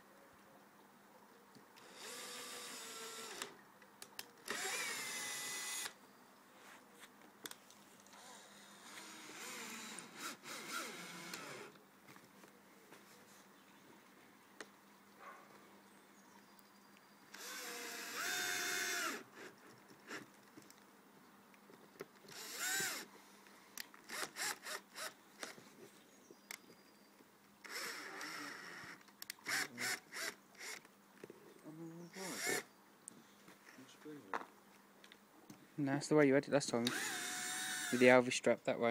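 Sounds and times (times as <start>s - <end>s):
electric drill whirring: 1.8s - 3.5s, 4.4s - 6.0s, 8.5s - 11.8s, 17.3s - 19.5s, 22.3s - 23.1s, 24.1s - 25.2s, 27.7s - 30.8s, 32.2s - 32.6s, 36.8s - 38.1s.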